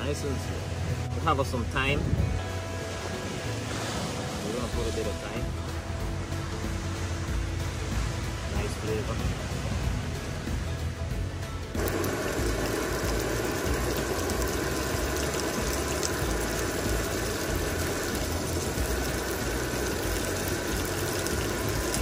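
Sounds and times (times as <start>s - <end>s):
onions sizzling in hot oil: 11.8s - 22.0s.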